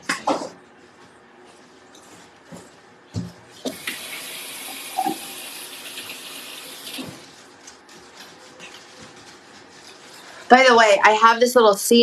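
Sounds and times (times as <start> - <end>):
faucet running: 3.7 - 7.2.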